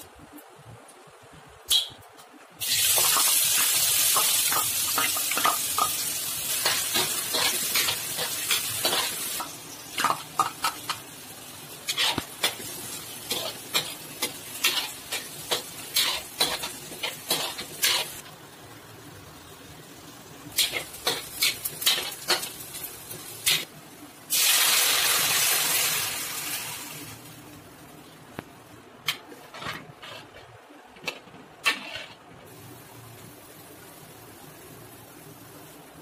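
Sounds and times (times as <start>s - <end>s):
onions sizzling in hot oil: 2.6s - 27.9s, 31.8s - 36.0s
metal spatula scraping a pan: 11.9s - 18.2s, 29.5s - 30.4s, 31.6s - 32.2s.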